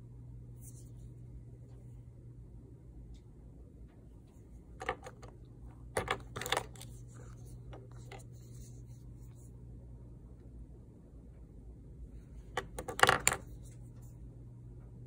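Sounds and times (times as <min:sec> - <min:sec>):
low steady hum: 0:00.0 - 0:15.0
cosmetic cases clicking: 0:04.8 - 0:05.3, 0:05.9 - 0:06.9, 0:12.6 - 0:13.4.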